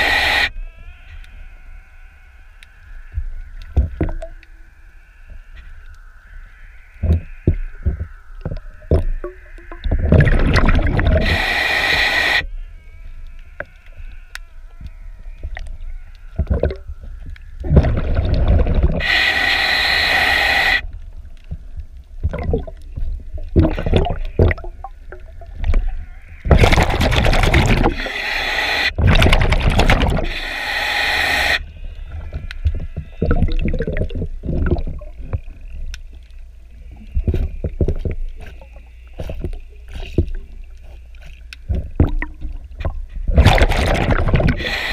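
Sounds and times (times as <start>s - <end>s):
exhaled bubbles underwater: 7.0s - 12.1s, 16.4s - 17.0s, 17.6s - 19.2s, 22.2s - 28.3s, 28.9s - 30.6s, 32.2s - 35.8s, 41.6s - 44.9s.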